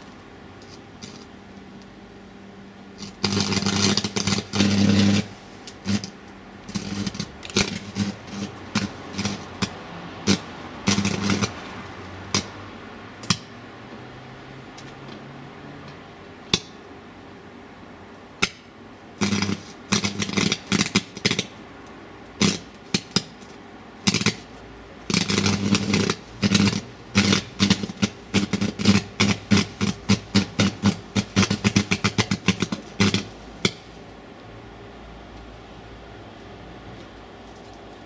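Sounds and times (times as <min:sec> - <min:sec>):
crackling buzzing welding arc: 0:00.0 - 0:01.6, 0:02.9 - 0:13.6, 0:16.4 - 0:16.8, 0:18.1 - 0:34.2
welding electrode snaps: 0:00.6 - 0:01.9, 0:03.0 - 0:11.7, 0:12.3 - 0:12.6, 0:13.2 - 0:13.5, 0:16.5 - 0:16.8, 0:18.4 - 0:24.5, 0:25.1 - 0:33.9.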